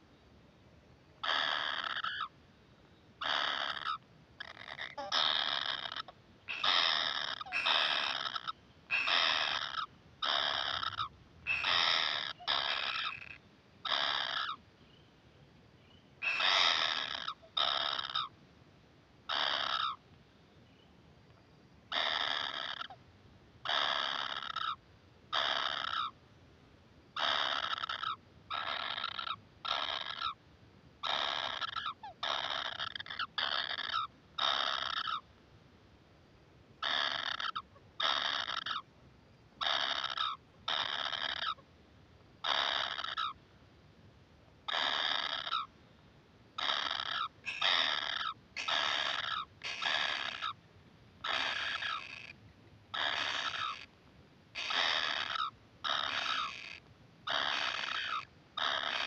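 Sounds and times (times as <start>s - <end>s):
nestlings harsh begging calls: 1.2s - 2.3s, 3.2s - 14.6s, 16.2s - 18.3s, 19.3s - 20.0s, 21.9s - 23.0s, 23.7s - 26.1s, 27.2s - 30.4s, 31.0s - 35.2s, 36.8s - 38.8s, 39.6s - 41.6s, 42.4s - 43.4s, 44.7s - 45.7s, 46.6s - 50.6s, 51.2s - 53.9s, 54.6s - 59.0s.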